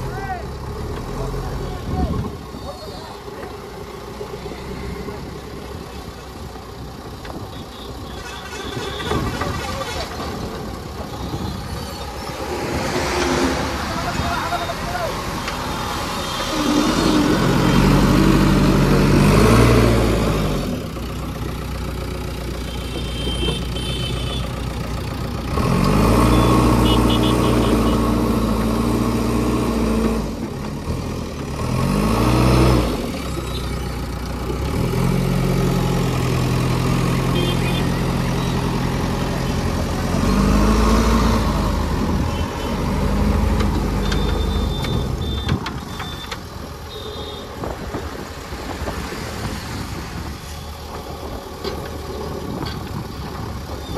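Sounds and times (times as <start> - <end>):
diesel engine revving under load: 8.3 - 53.9
short high beeps: 44.0 - 46.3.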